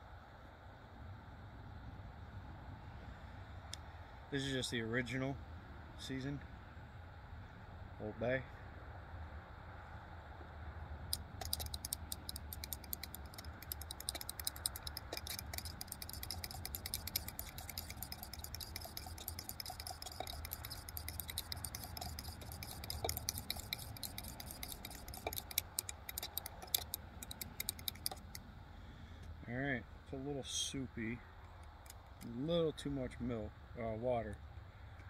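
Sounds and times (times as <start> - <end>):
utensil scraping steel cup: 11.1 - 28.4.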